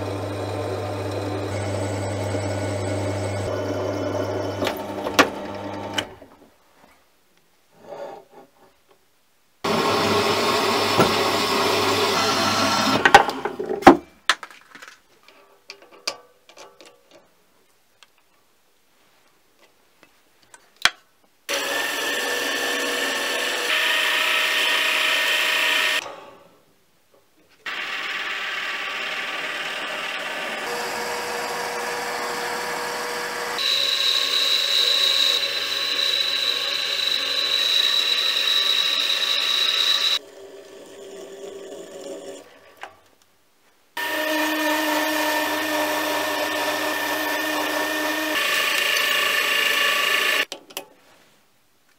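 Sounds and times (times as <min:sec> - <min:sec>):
bandsaw cutting metal: 0:00.0 - 0:03.5, 0:09.7 - 0:13.2, 0:21.5 - 0:26.3, 0:27.6 - 0:42.5, 0:44.0 - 0:50.5
lathe running: 0:00.0 - 0:06.1, 0:09.7 - 0:13.0, 0:21.5 - 0:26.0, 0:27.7 - 0:42.3, 0:44.0 - 0:50.5.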